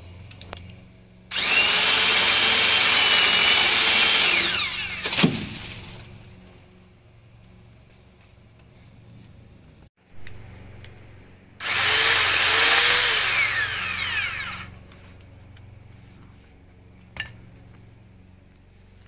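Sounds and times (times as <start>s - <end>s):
electric chain lopper cutting branch: 1.3s - 6.2s, 11.6s - 15.8s.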